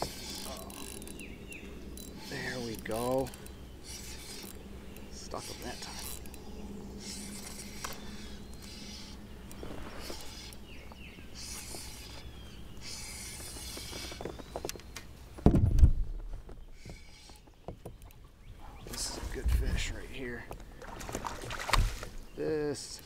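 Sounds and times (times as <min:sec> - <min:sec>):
fishing reel cranking: 0:00.0 - 0:01.2, 0:02.0 - 0:04.6, 0:05.2 - 0:06.4, 0:07.0 - 0:09.2, 0:10.0 - 0:10.6, 0:11.4 - 0:14.2
water splashing: 0:20.8 - 0:22.2.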